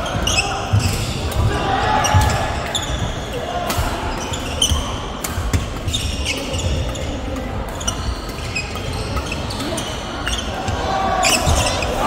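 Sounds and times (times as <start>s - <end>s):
shoes squeaking on floor: 0.0s - 1.2s, 4.2s - 4.9s, 5.5s - 10.6s, 11.2s - 12.0s
sports hall hum: 0.0s - 12.0s
rackets hitting shuttlecock: 3.6s - 12.0s.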